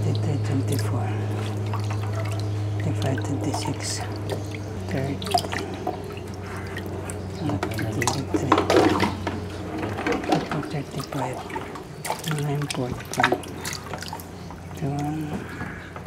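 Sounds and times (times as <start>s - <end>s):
low steady hum: 0.0s - 16.0s
water splashing in bucket: 0.0s - 16.0s.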